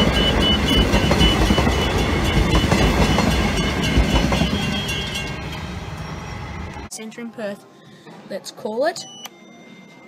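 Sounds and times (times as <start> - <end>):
wheels clacking over rail joints: 0.0 - 5.6
electric train rumbling past: 0.0 - 6.9.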